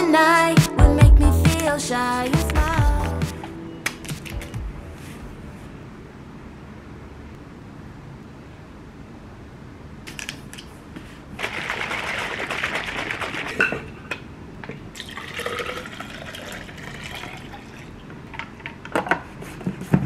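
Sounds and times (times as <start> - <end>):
drink pouring into plastic tumbler: 15.0 - 17.9.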